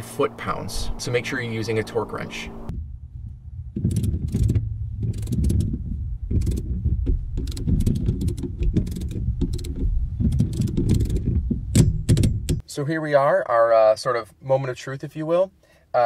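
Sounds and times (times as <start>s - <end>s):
socket ratchet clicking: 7.4s - 9.8s.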